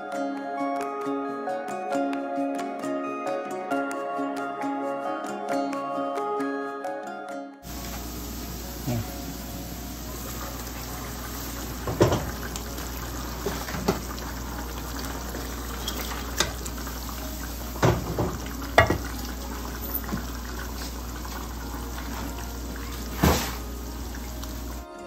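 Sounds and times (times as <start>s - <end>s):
gravy bubbling in a pan: 7.7s - 24.8s
bowl knocking against a pan: 11.8s - 12.4s, 17.8s - 19.2s.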